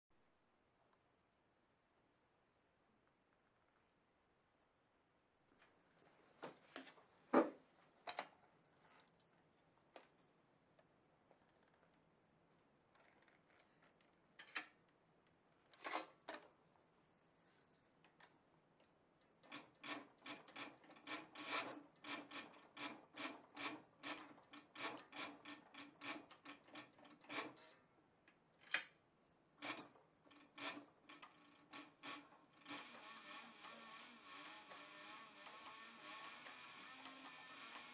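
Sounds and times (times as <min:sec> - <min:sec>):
sewing machine needle strokes: 0:19.4 - 0:27.7, 0:29.6 - 0:37.9.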